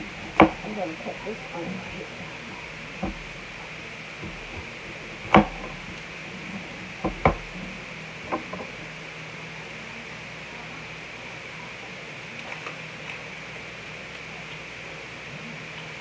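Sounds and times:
steady hiss: 0:00.0 - 0:16.0
knife chopping on cutting board: 0:00.1 - 0:00.7.

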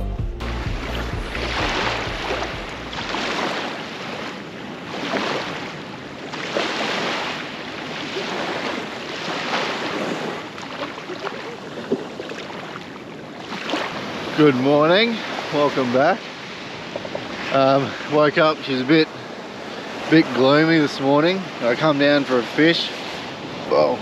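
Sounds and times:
small waves breaking on beach: 0:00.8 - 0:24.0
wind on microphone: 0:16.4 - 0:18.2.

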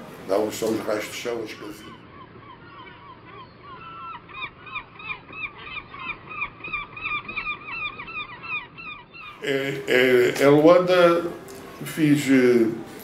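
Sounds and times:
flock of birds calling: 0:00.3 - 0:09.5.

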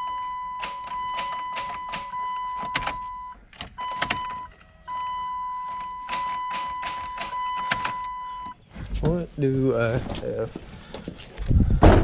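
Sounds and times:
dashboard warning tone: 0:00.0 - 0:08.6.

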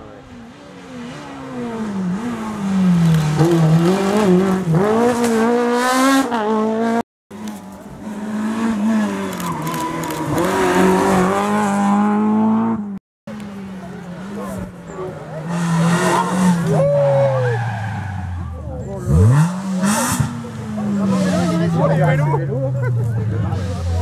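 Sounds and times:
rally car engine revving hard: 0:00.9 - 0:07.0, 0:08.0 - 0:13.0, 0:18.9 - 0:24.0
rally car engine shifting up gears: 0:18.4 - 0:24.0.

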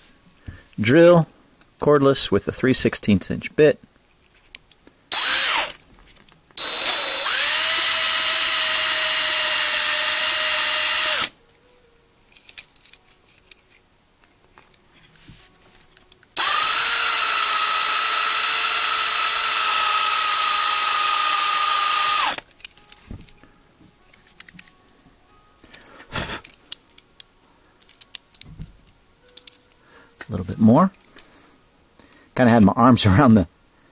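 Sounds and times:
cordless drill whining: 0:05.1 - 0:05.8, 0:06.6 - 0:11.3, 0:16.4 - 0:22.4
handling clicks: 0:22.3 - 0:23.5, 0:25.6 - 0:28.5, 0:29.2 - 0:29.8.

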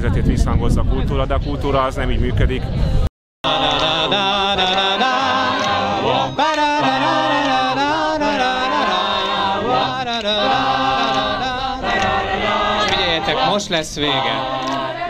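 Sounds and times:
man's leading voice: 0:03.4 - 0:14.9
group singing: 0:03.4 - 0:15.0.

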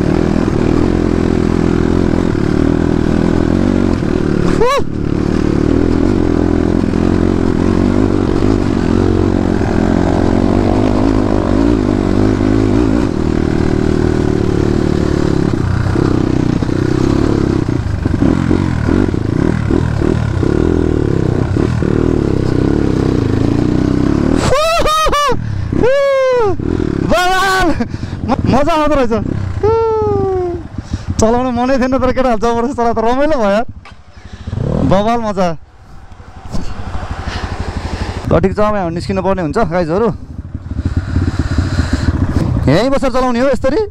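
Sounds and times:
dirt bike engine revving: 0:00.0 - 0:43.9.

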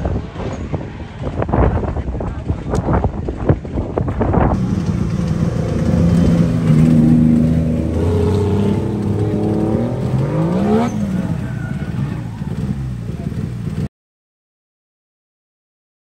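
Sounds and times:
race car engines idling: 0:00.6 - 0:13.9
engine revving up: 0:04.6 - 0:13.9.

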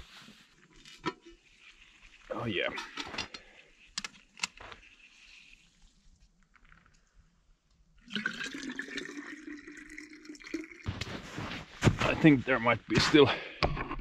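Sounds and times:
water pouring into flask: 0:08.0 - 0:10.9.

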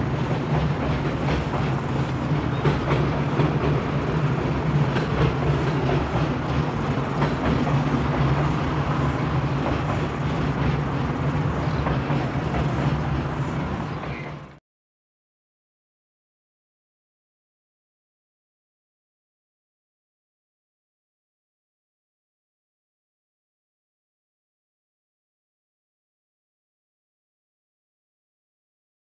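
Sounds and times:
freight train rumbling over bridge: 0:00.0 - 0:14.6
wheels clicking over rail joints: 0:00.0 - 0:14.6.

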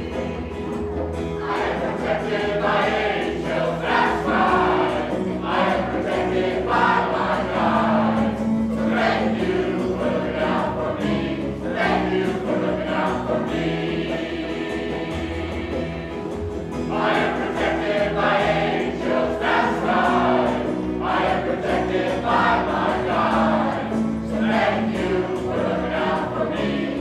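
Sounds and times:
mixed choir singing: 0:00.0 - 0:27.0.

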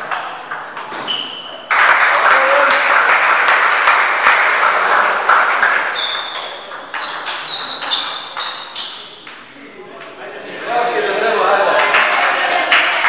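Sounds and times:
spectators applauding: 0:01.6 - 0:06.7, 0:11.6 - 0:13.0
table tennis ball pings: 0:05.9 - 0:09.5.

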